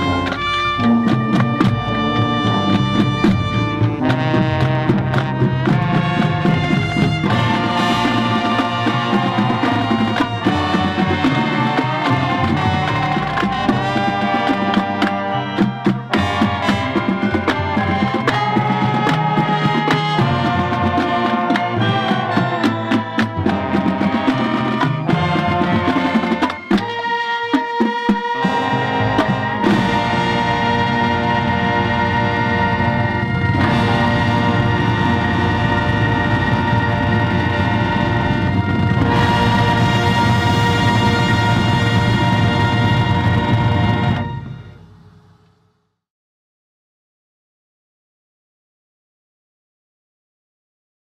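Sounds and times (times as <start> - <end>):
bass drums: 0.0 - 26.8, 28.6 - 44.8
marimba: 0.0 - 37.9
snare drums: 0.0 - 44.8
marching band playing: 0.0 - 45.5.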